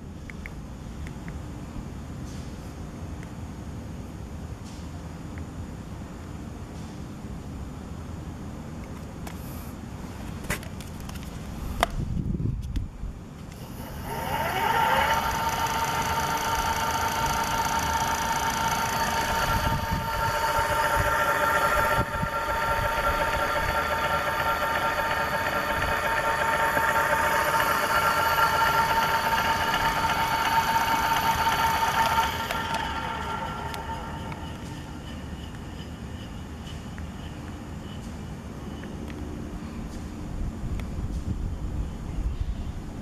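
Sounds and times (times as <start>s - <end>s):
electric hub motor whining: 13.4s - 36.4s.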